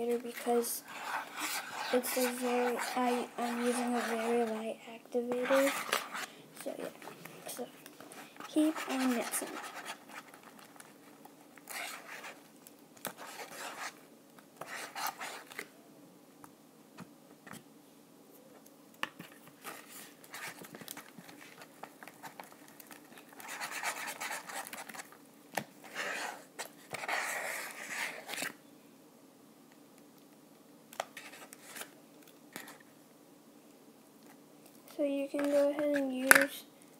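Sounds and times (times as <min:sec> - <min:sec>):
slime scraping against bowl: 0:00.3 - 0:07.6, 0:08.2 - 0:10.3.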